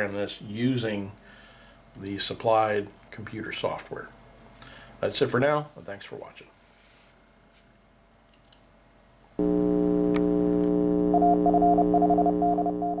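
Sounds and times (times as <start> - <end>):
synthesizer chord: 10.7 - 13.0.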